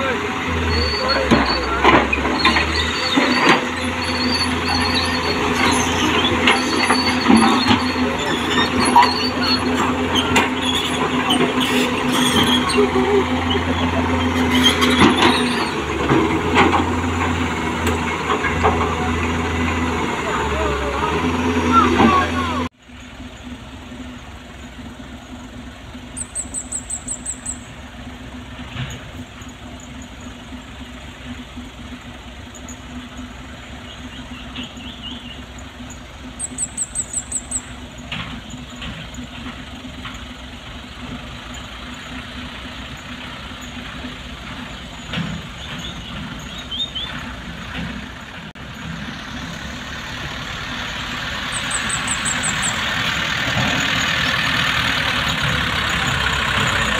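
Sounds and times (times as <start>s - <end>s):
truck engine running: 0.0s - 56.9s
high-pitched chirps: 26.2s - 27.7s, 36.4s - 37.8s, 51.5s - 52.9s.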